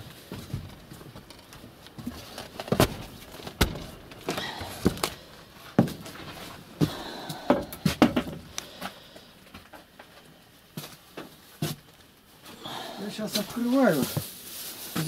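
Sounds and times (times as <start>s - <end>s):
footsteps on wooden floor: 3.6s - 8.2s.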